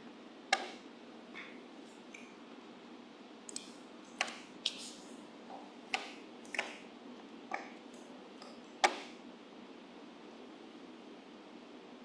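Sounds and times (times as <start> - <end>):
computer mouse clicking: 0.5 - 0.8, 3.5 - 4.9, 5.9 - 6.8, 8.4 - 9.1.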